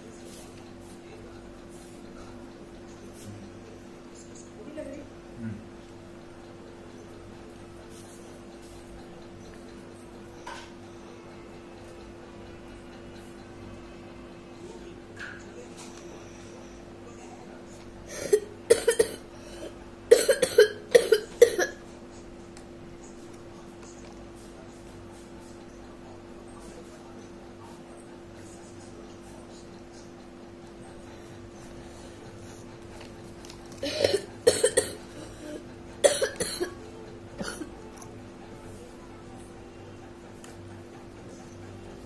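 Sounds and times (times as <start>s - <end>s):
person coughing: 18.1s - 21.8s, 33.8s - 36.8s, 37.4s - 37.7s.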